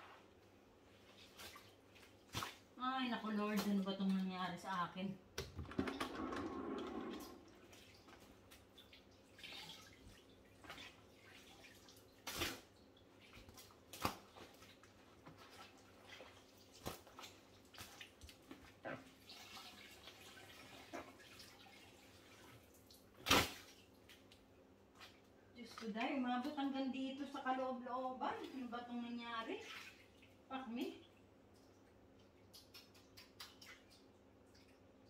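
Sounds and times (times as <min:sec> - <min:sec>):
water dripping and splashing: 0:07.1 - 0:27.5, 0:28.2 - 0:35.0.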